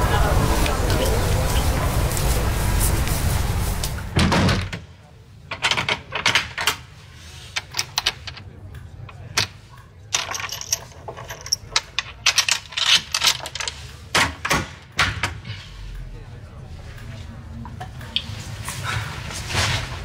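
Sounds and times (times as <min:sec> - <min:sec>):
door bolts and chain rattling: 0:10.1 - 0:13.8.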